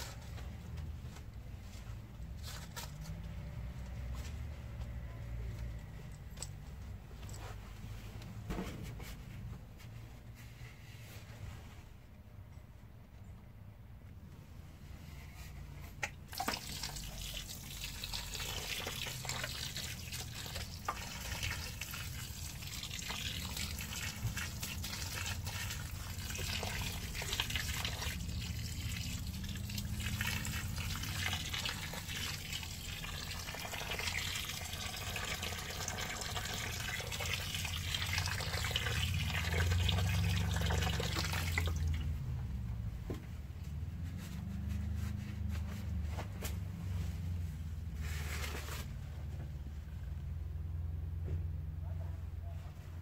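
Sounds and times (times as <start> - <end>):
water pouring onto soil: 16.2 - 42.0.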